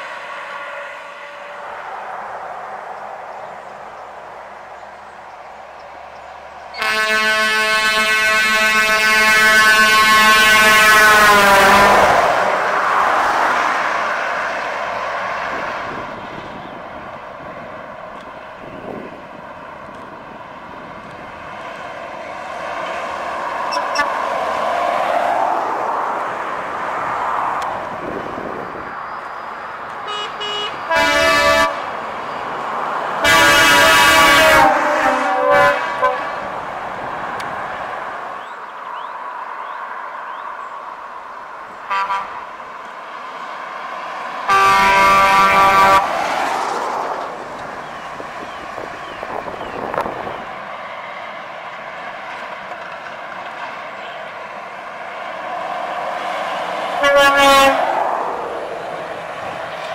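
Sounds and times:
truck engine and tyre noise: 0:00.0 - 0:59.9
truck air horn blasts: 0:00.4 - 0:01.7, 0:06.8 - 0:12.2, 0:23.7 - 0:24.3, 0:30.0 - 0:31.9, 0:33.2 - 0:36.5, 0:41.8 - 0:42.5, 0:44.5 - 0:46.1, 0:57.0 - 0:57.9.

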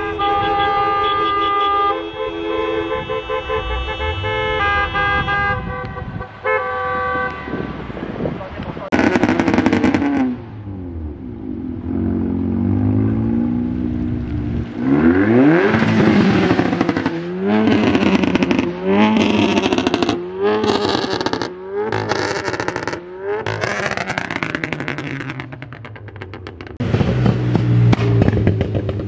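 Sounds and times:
car engine revving hard: 0:08.9 - 0:10.5, 0:11.8 - 0:25.6.

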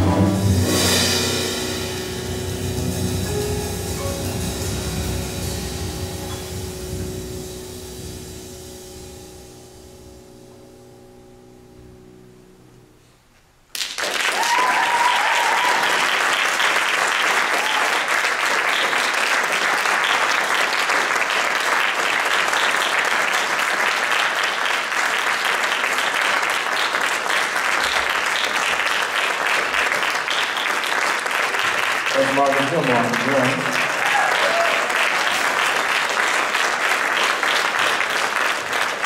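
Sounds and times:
audience applauding: 0:13.7 - 0:39.0
crowd cheering: 0:13.8 - 0:39.0.

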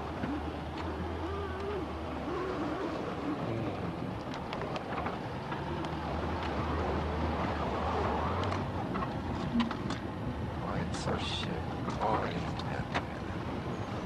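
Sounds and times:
light clicks and crackles: 0:04.2 - 0:06.6, 0:08.3 - 0:10.1.

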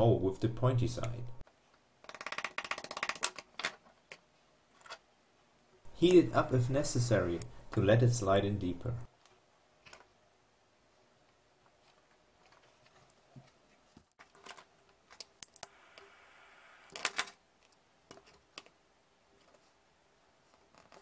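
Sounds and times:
faint hiss: 0:15.7 - 0:17.1.

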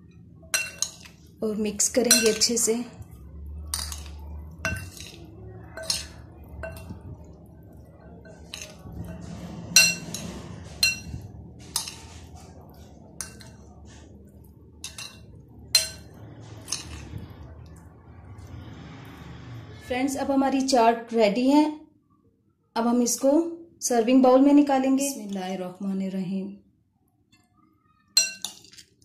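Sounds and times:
metal spoon clinking on glass bowl: 0:00.5 - 0:01.2, 0:02.0 - 0:02.7, 0:03.7 - 0:07.3, 0:08.0 - 0:12.1, 0:13.2 - 0:13.7, 0:14.8 - 0:17.1, 0:28.2 - 0:29.0.

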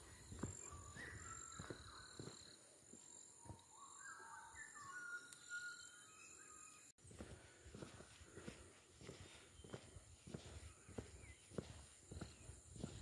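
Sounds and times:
footsteps: 0:00.0 - 0:03.7, 0:07.0 - 0:13.0
birds singing faintly: 0:00.0 - 0:13.0.

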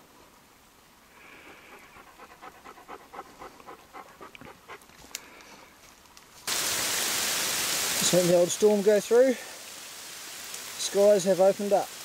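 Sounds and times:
dog panting: 0:01.4 - 0:05.0
heavy rain: 0:06.5 - 0:12.0.

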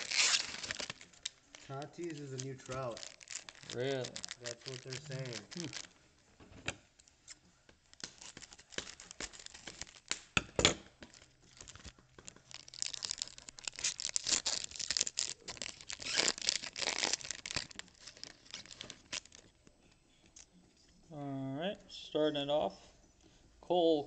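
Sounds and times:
cards rustling and clicking: 0:00.0 - 0:06.0, 0:07.2 - 0:20.5.

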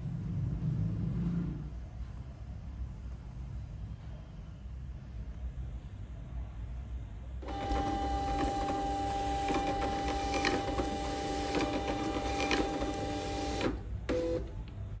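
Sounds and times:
printer feed motor whine: 0:07.4 - 0:14.6.

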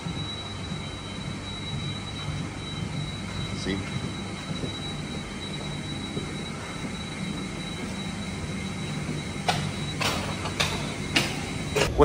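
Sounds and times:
high-pitched whine: 0:00.0 - 0:12.0
low hum of aircraft machinery: 0:00.0 - 0:12.0.

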